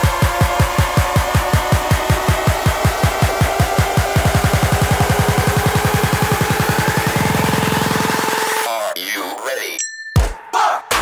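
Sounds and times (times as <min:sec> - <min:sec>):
downward-sweeping bass hits: 0:00.0 - 0:08.5.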